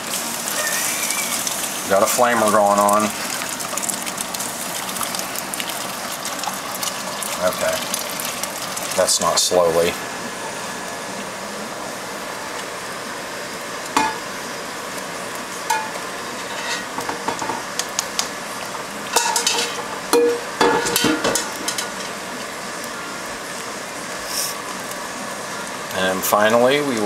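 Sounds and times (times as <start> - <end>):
steady hiss: 0.0 - 27.0
spoon knocking against metal pot: 19.2 - 21.8.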